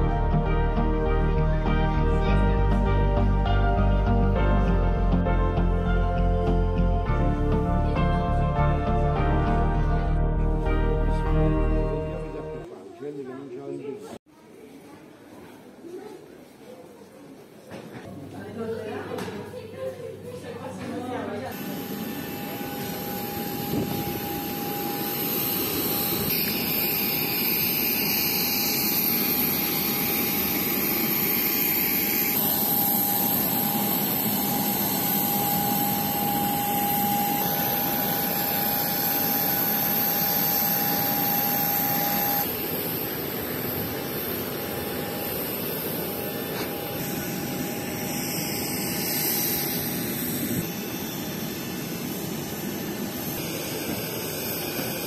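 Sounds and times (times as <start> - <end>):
jet turbine whining: 21.5 - 55.0
high whistle: 32.3 - 42.5.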